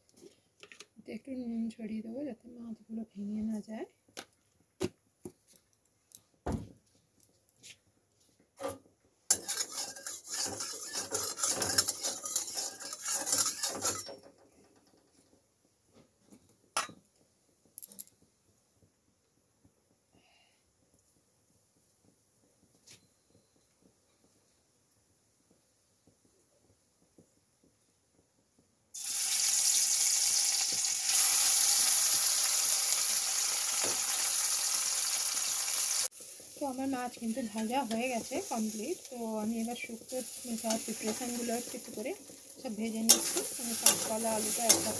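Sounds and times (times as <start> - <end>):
metal spatula scraping a pan: 8.6 - 14.2, 37.5 - 44.9
hot oil sizzling: 8.6 - 15.2, 28.9 - 44.9.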